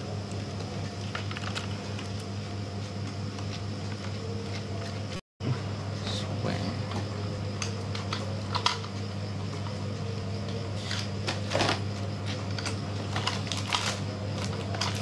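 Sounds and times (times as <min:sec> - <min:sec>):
steady low hum: 0:00.0 - 0:15.0
plastic packaging crackling: 0:11.3 - 0:15.0.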